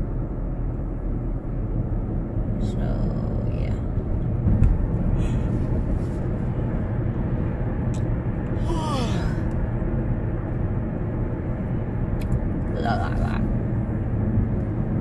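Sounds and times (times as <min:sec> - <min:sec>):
car cabin road rumble: 0:00.0 - 0:15.0.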